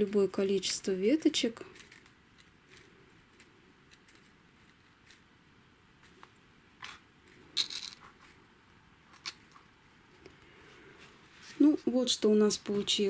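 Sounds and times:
sequin leaves rustling and clicking: 0.0 - 5.4, 6.0 - 8.4, 9.0 - 10.3.

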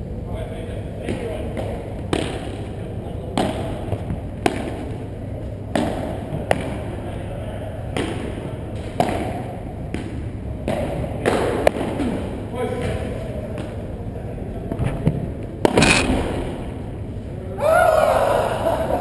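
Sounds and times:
ball bouncing off court and walls: 15.0 - 16.7.

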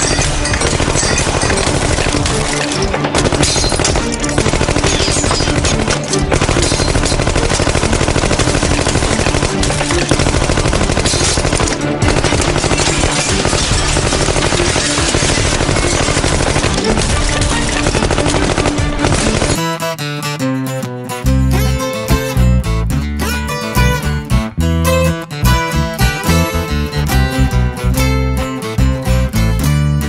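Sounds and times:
automatic gunfire: 0.0 - 19.6
music: 0.0 - 30.0.

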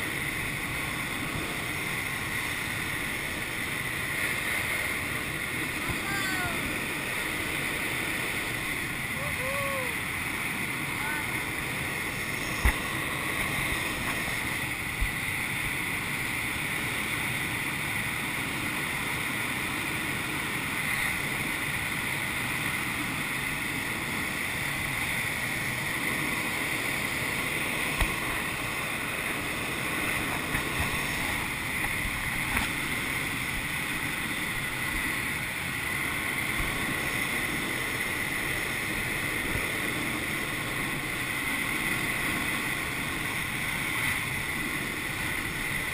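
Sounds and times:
air rushing over glider: 10.6 - 16.2, 25.1 - 45.9.

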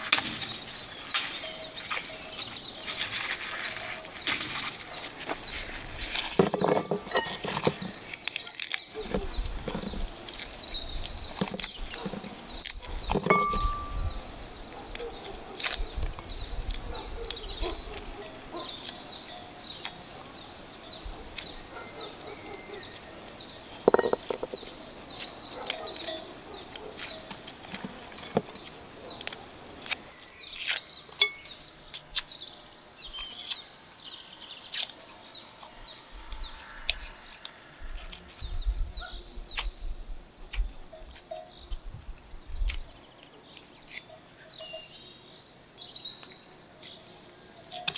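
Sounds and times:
small birds chirping: 0.0 - 47.9
knife clicks peeling garlic: 43.8 - 44.0.

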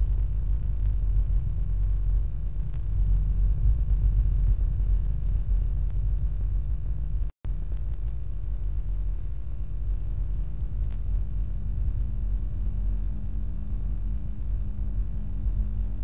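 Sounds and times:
faint low hum: 0.0 - 16.0
low steady rumble: 0.0 - 16.0.

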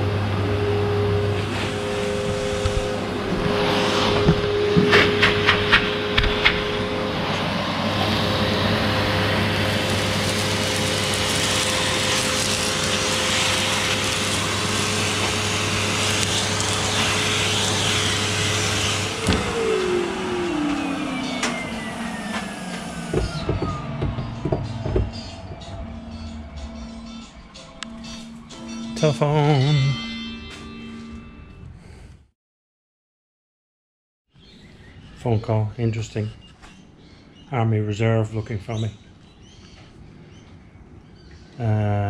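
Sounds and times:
vacuum cleaner motors whining: 0.0 - 29.4
knock: 23.1 - 25.2.

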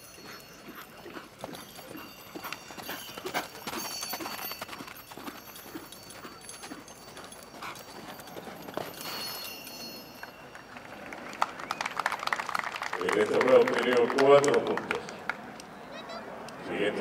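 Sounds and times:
horse hoofbeats: 0.0 - 12.0.

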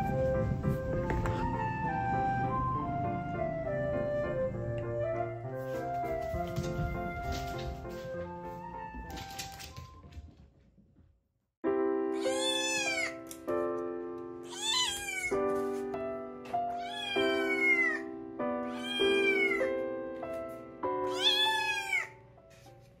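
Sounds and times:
background music of held chords: 0.0 - 9.0, 11.7 - 23.0
cat meowing: 12.2 - 13.3, 14.4 - 15.4, 16.7 - 19.8, 21.0 - 22.2.

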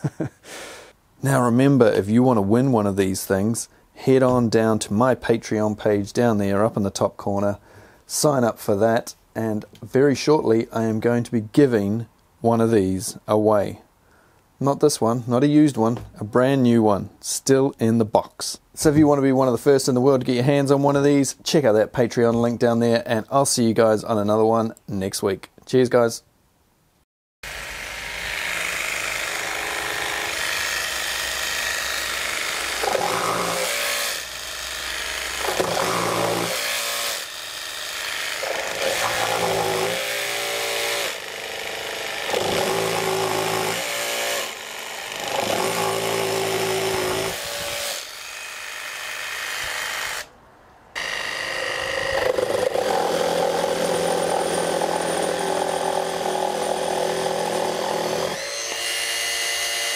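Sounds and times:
jigsaw cutting through timber: 27.4 - 50.3, 51.0 - 59.9.

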